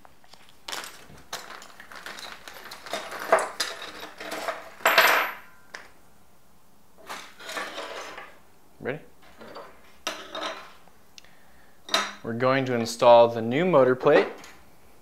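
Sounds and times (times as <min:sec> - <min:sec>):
plastic bag rustling: 0:00.0 - 0:04.8
small parts clicking and clattering: 0:00.3 - 0:05.8.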